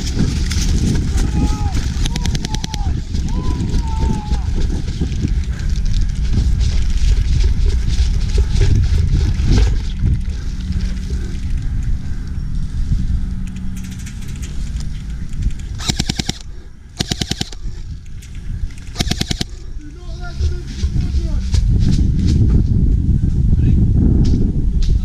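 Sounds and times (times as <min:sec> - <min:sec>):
rumbling and clattering: 0:00.0 - 0:16.4
airsoft gun firing bursts: 0:02.0 - 0:02.8, 0:15.8 - 0:17.6, 0:19.0 - 0:19.6.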